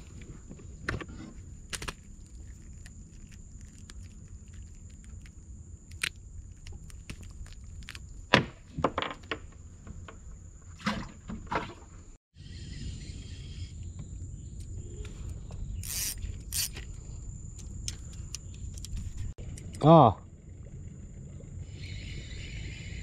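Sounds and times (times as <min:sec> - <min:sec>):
high insect drone: 0:12.4 - 0:18.9.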